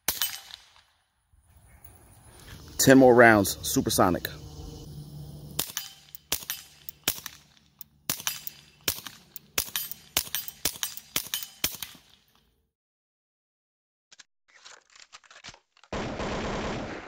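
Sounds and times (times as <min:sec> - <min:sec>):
suppressed pistol shots: 0:05.6 - 0:07.5, 0:08.1 - 0:12.1.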